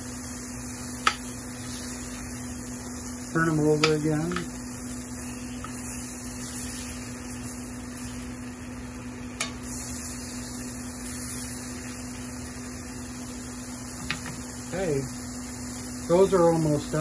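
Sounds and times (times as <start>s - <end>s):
chicken sizzling in a skillet: 0.0s - 17.0s
electrical hum: 0.0s - 17.0s
metal spatula turning food: 3.3s - 8.2s.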